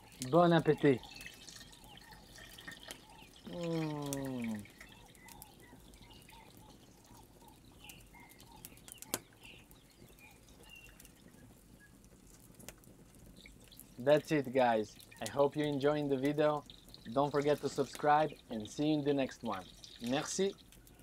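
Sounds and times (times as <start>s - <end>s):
wood fire crackling: 0.0s - 21.0s
man humming mmm: 3.5s - 4.6s.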